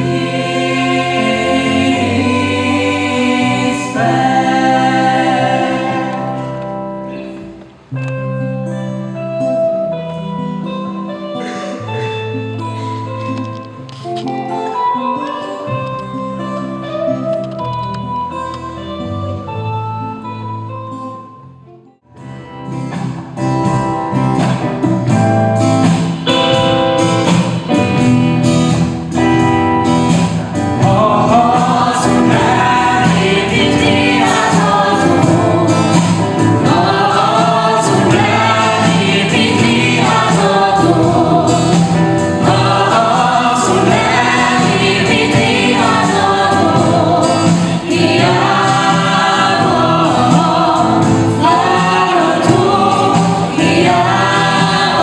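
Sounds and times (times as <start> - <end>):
people singing together: 0.0 - 7.5, 30.1 - 55.0
live band instrumental backing: 0.0 - 55.0.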